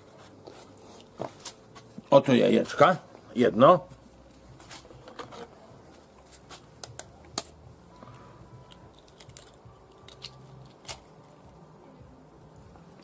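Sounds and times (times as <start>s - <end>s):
eggshell cracking: 8.7s - 11.2s.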